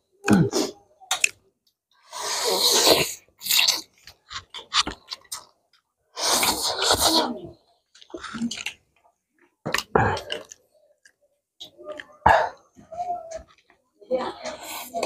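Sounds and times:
people slurping noodles: 2.0 - 5.4, 6.2 - 8.7, 14.3 - 15.0
mouth smacks and clicks: 2.6 - 5.5.

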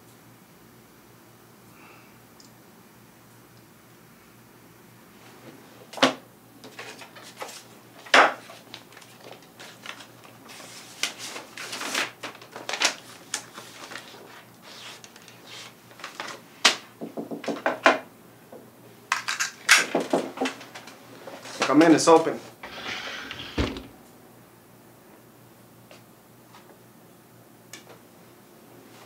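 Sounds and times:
paper rustling and sliding: 6.6 - 16.4, 22.3 - 23.9.

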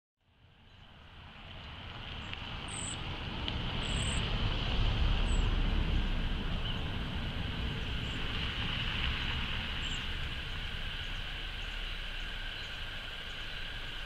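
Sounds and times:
steady low rumble: 0.3 - 14.0
high insect drone: 3.8 - 14.0.

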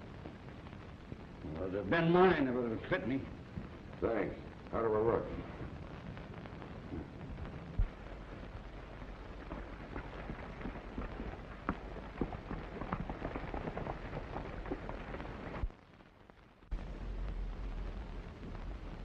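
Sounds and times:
steady hiss: 0.0 - 19.0
horses galloping hoofbeats: 8.6 - 15.7.

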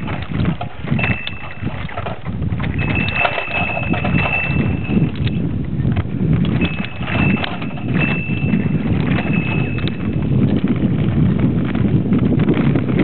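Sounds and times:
bicycle rattling over dirt track: 0.0 - 13.0
thin high-pitched squeal: 6.6 - 10.1.

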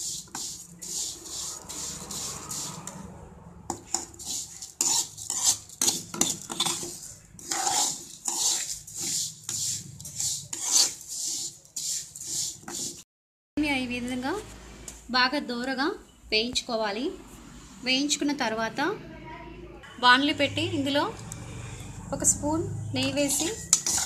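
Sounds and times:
spoon scraping a metal pan: 0.0 - 3.1, 3.7 - 13.0, 23.0 - 24.0.

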